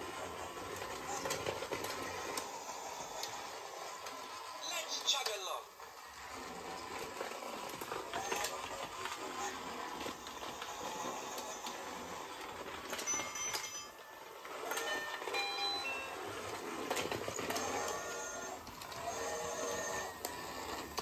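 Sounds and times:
toy train motor whir: 0.0s - 21.0s.

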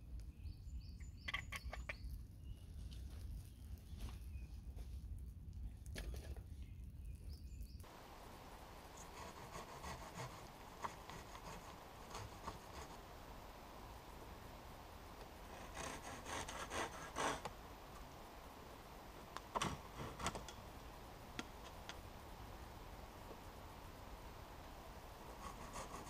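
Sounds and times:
hand saw rasping on wood: 15.5s - 17.5s.

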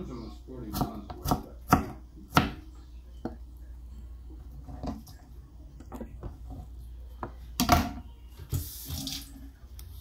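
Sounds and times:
water running at sink: 8.4s - 9.8s.

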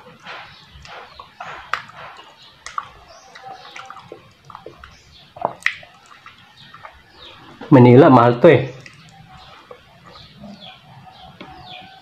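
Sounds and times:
lip smacks: 0.0s - 7.7s, 8.8s - 10.4s
wet chewing and sucking: 0.0s - 7.7s, 8.8s - 11.8s.

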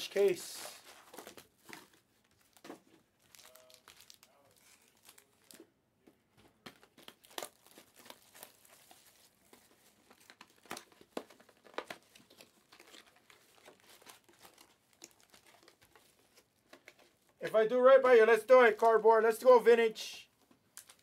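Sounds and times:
foil wrappers crinkling: 0.0s - 5.7s, 6.6s - 17.4s, 20.5s - 21.0s.

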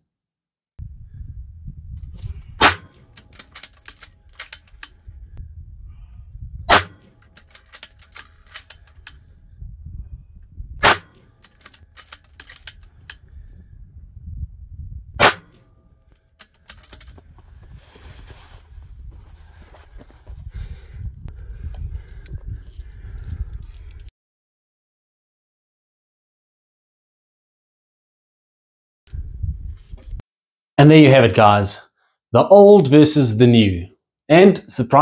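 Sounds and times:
low rumble: 0.8s - 16.1s
rifle shots: 2.6s - 3.3s, 6.7s - 7.2s, 10.8s - 11.3s, 15.2s - 15.6s.

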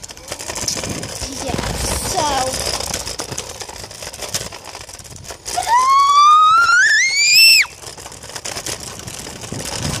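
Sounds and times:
child shrieking: 5.6s - 7.7s.

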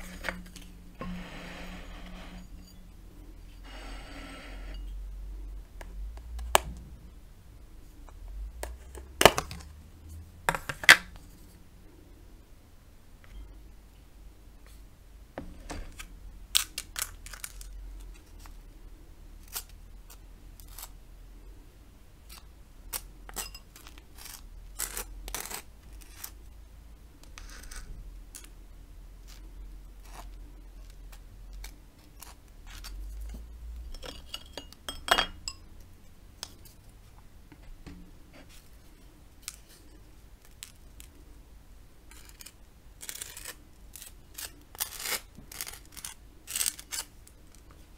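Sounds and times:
knife scraping toast: 42.1s - 47.1s.

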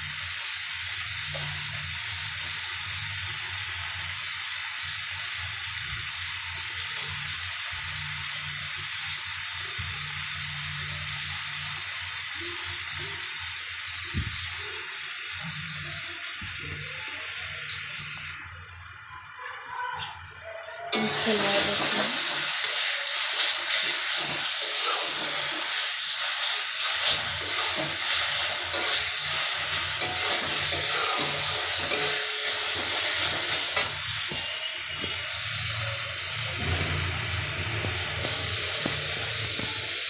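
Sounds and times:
paste sizzling in hot oil: 20.8s - 40.0s
metal spatula stirring and scraping: 22.7s - 34.5s.

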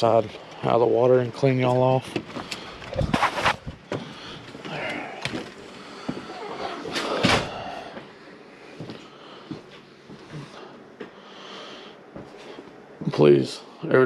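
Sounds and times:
phone rubbing against clothing: 3.0s - 3.7s
scraping rustling bursts: 3.0s - 3.7s.

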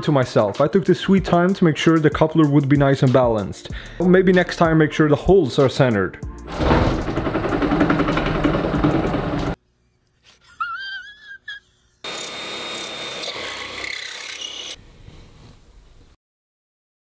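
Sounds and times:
electric motor spinning and shaking: 6.5s - 9.6s.

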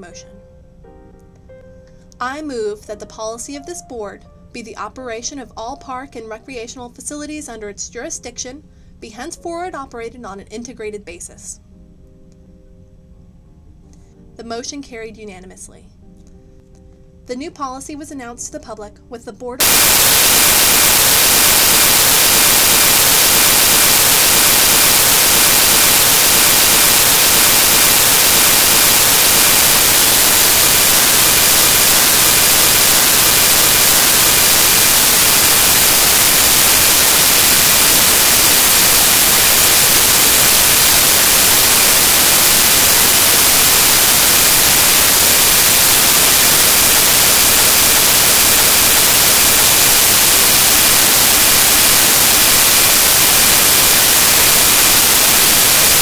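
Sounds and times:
loud static hiss: 19.6s - 56.0s.

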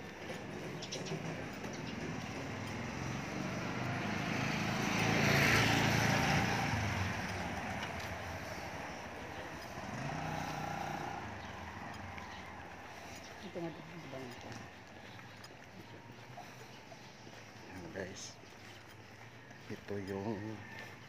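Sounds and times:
fainter engine: 0.0s - 18.4s
motorcycle riding by: 0.4s - 15.0s.

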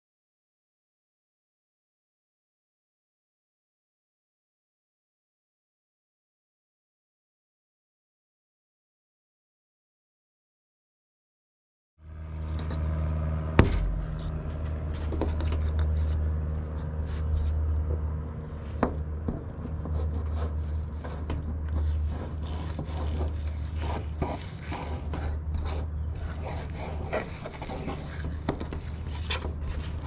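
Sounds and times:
low mechanical hum: 12.0s - 30.0s
sharp knock: 13.6s - 14.2s
knife scraping on cutting board: 19.7s - 30.0s.

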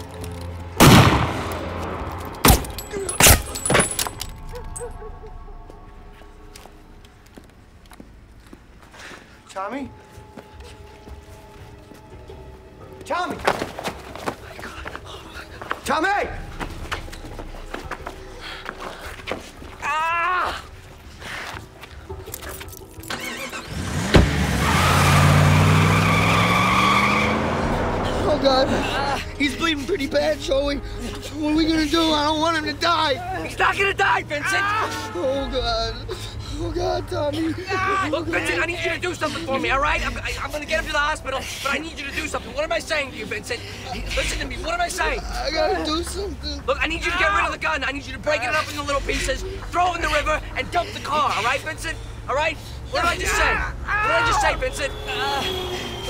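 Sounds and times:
pistol shots: 0.8s - 3.5s
car engine revving and accelerating: 23.5s - 29.1s.

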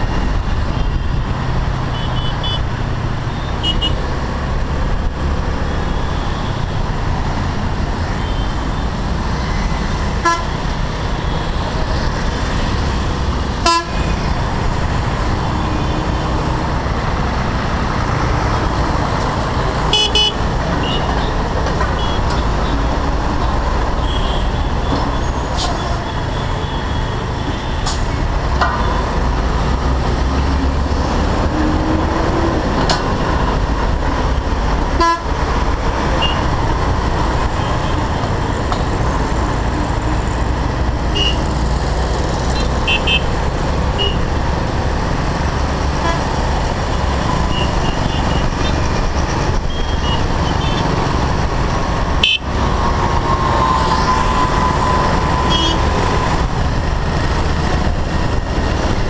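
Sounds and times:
wind and road noise: 0.0s - 59.0s
vehicle horns tooting: 1.9s - 2.7s, 3.3s - 4.0s, 10.2s - 10.6s, 13.6s - 14.2s, 19.9s - 21.3s, 24.0s - 27.8s, 35.0s - 35.3s, 41.1s - 41.5s, 42.6s - 43.3s, 44.0s - 44.2s, 49.7s - 51.0s, 52.2s - 52.6s, 54.1s - 56.0s.

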